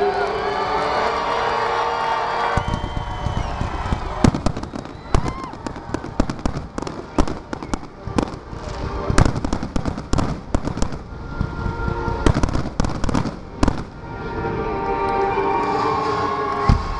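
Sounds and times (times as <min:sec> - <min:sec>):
fireworks bursting: 0:02.5 - 0:14.2.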